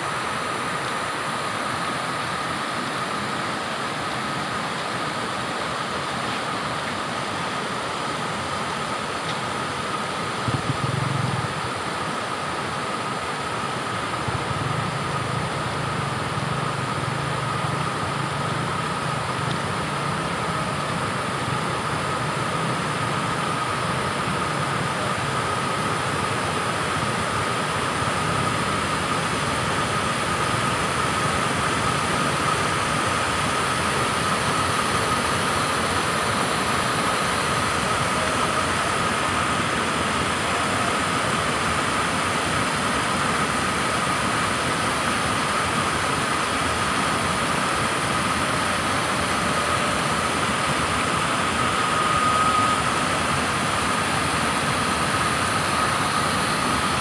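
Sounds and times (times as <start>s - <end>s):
water rushing over rocks: 0.0s - 57.0s
thin high tone: 48.4s - 57.0s.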